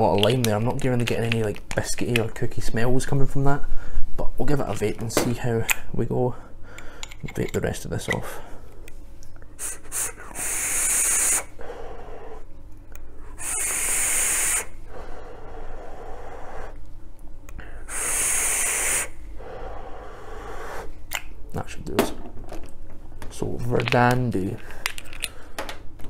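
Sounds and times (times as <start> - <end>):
airy hisses of vape draws: 9.6 - 12.4, 13.3 - 16.7, 17.8 - 20.9
breathy exhales: 9.6 - 12.5, 13.2 - 16.8, 17.6 - 20.9.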